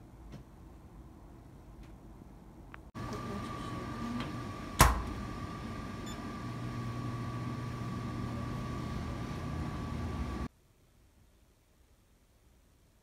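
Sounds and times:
machine hum with high whine: 0:02.7 - 0:10.5.

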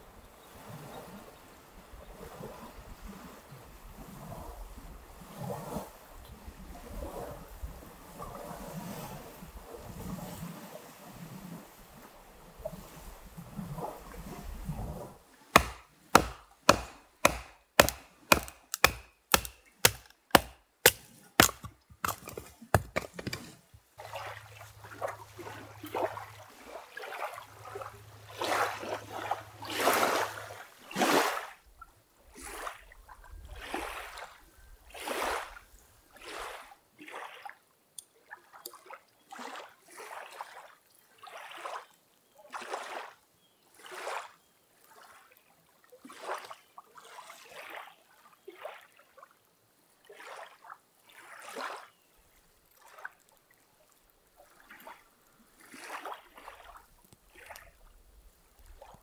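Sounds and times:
small waves lapping on shore: 0:00.0 - 0:59.0
sharp evenly spaced clicks: 0:15.6 - 0:21.0.

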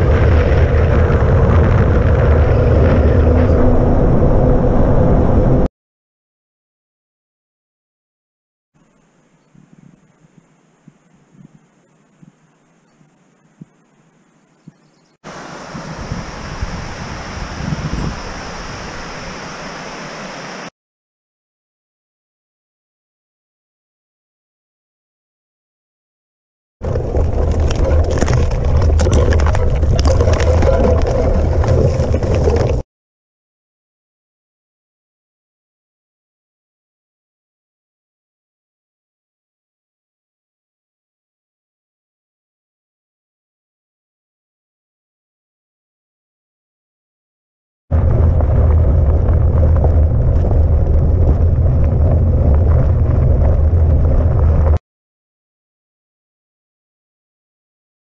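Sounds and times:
wind rumble on microphone: 0:00.0 - 0:05.7, 0:08.9 - 0:19.9, 0:26.8 - 0:32.8, 0:47.9 - 0:54.8
bike rattling over bumps: 0:26.8 - 0:32.8, 0:48.0 - 0:54.8
tyres crunching over gravel: 0:26.9 - 0:32.8.

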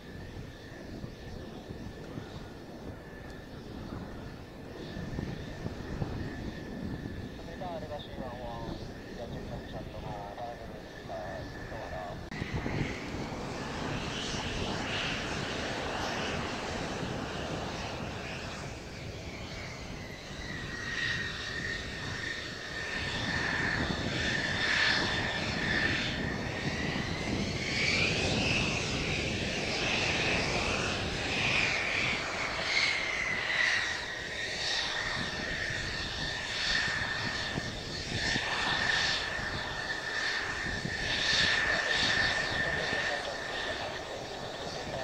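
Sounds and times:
jet engine rush and whine: 0:00.0 - 0:45.0.

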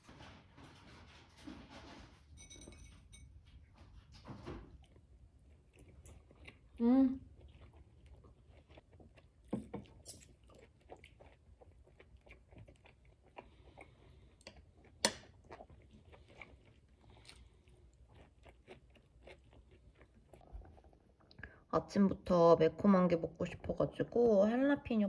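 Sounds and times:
person chewing food: 0:04.7 - 0:21.4.

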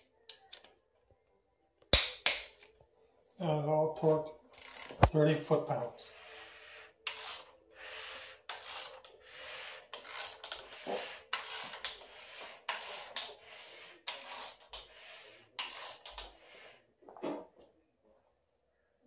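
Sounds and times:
ratchet wrench clicking: 0:04.5 - 0:05.1, 0:07.1 - 0:07.5, 0:08.5 - 0:13.3, 0:14.1 - 0:16.3.

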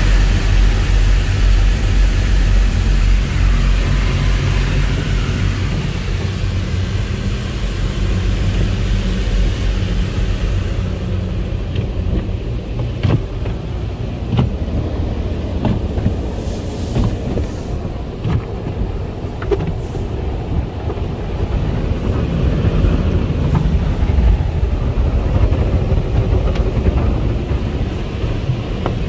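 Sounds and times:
water spray hiss: 0:00.0 - 0:12.1, 0:12.8 - 0:18.1
car wash low rumble: 0:00.0 - 0:29.0
cloth strips slapping a car: 0:11.6 - 0:21.1.

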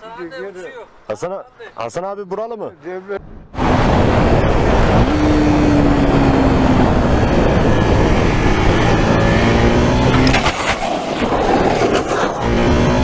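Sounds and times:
wind rush on microphone: 0:03.2 - 0:13.0
motorcycle engine accelerating: 0:03.6 - 0:13.0.

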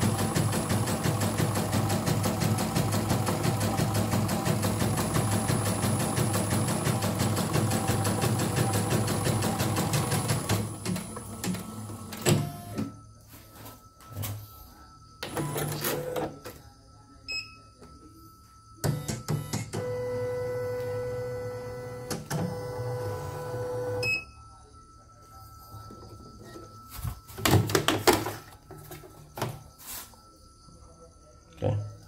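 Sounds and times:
embroidery machine stitching: 0:00.0 - 0:12.5
control panel beeps: 0:17.3 - 0:17.7, 0:23.5 - 0:24.4.

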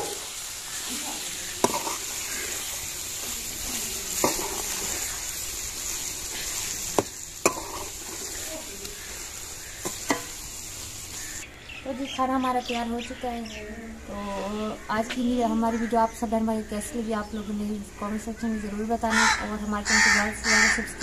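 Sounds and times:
fish frying in a metal pan: 0:00.0 - 0:11.4
steel ladle stirring: 0:01.6 - 0:10.5
ladle clicking against pan: 0:09.8 - 0:10.4.

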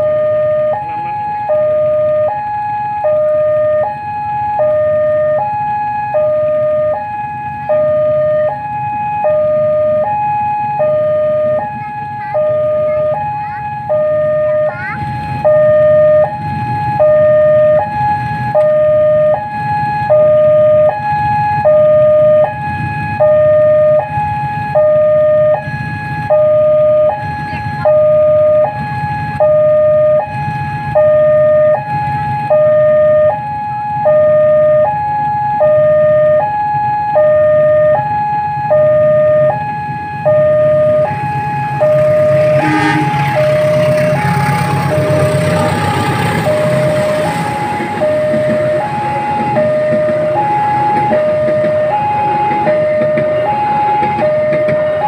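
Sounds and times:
two-tone crossing alarm: 0:00.0 - 0:55.0
train rumbling: 0:40.1 - 0:55.0.

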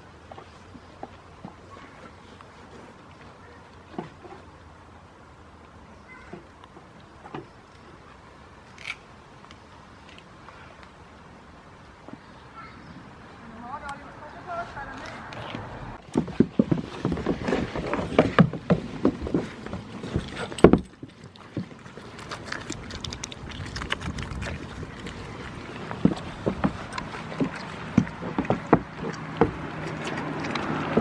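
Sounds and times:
goats knocking on wood: 0:25.9 - 0:31.0.

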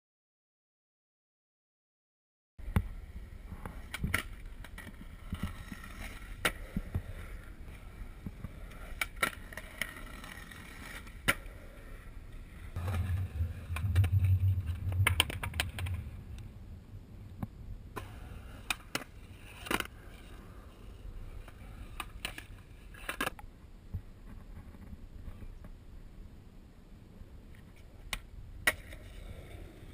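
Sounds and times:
skateboard sliding rumble: 0:02.6 - 0:23.4, 0:28.6 - 0:29.9
skateboard wheels rolling: 0:02.6 - 0:23.4, 0:27.5 - 0:29.9
skateboard clacks: 0:03.6 - 0:12.0, 0:28.1 - 0:29.9.

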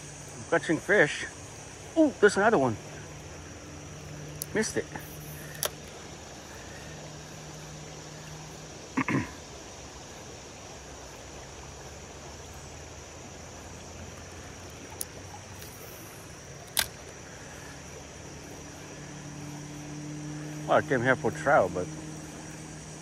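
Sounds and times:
creek water rushing: 0:00.0 - 0:23.0
sharp click: 0:16.7 - 0:17.0.

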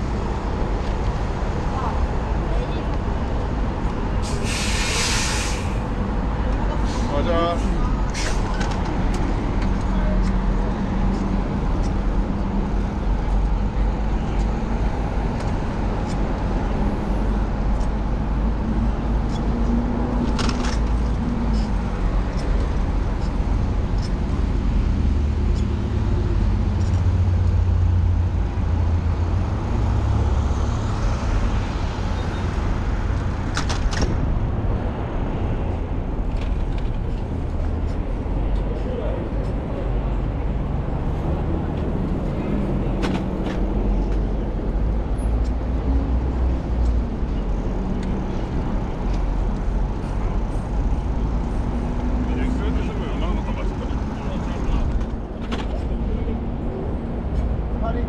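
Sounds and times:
road traffic rumble: 0:00.0 - 0:58.0.

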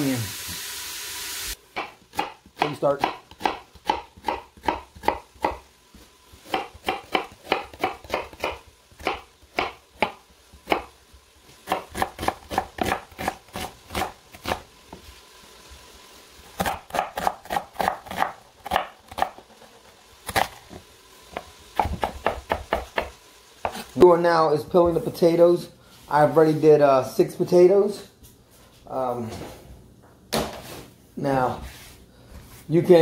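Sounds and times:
knife chopping on wooden board: 0:01.8 - 0:05.6, 0:06.4 - 0:10.9, 0:11.6 - 0:14.6, 0:16.6 - 0:19.5, 0:20.3 - 0:23.9.

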